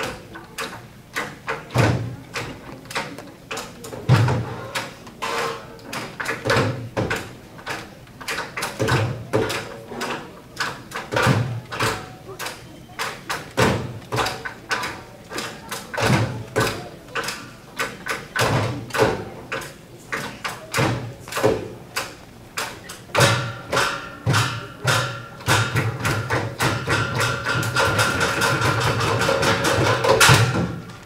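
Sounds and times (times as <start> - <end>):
hand drums played by group: 23.0 - 30.9.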